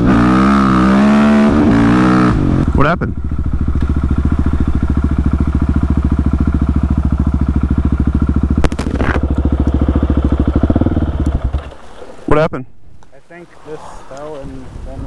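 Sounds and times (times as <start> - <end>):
motorcycle engine idling: 2.3 - 11.8.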